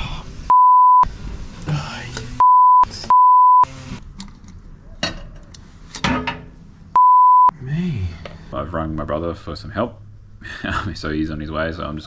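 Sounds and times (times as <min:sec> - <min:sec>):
censor bleeps: 0:00.5 - 0:01.1, 0:02.4 - 0:03.7, 0:07.0 - 0:07.5.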